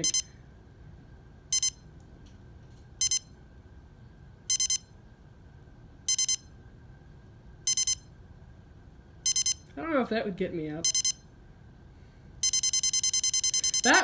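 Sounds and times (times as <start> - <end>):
digital alarm clock beeping: 0.0 - 0.3, 1.5 - 1.8, 3.0 - 3.4, 4.5 - 4.9, 6.1 - 6.5, 7.7 - 8.1, 9.2 - 9.7, 10.8 - 11.3, 12.4 - 14.0.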